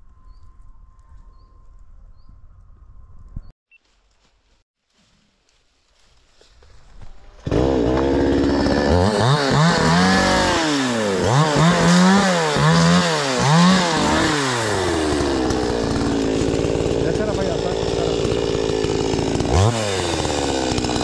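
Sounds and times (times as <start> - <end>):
faint rustling: 3.7 - 7.4
chainsaw engine revving: 7.4 - 21.0.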